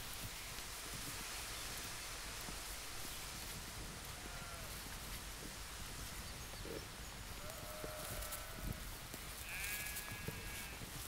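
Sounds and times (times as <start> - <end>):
wind noise: 0.0 - 11.0
sheep bleating: 9.4 - 10.8.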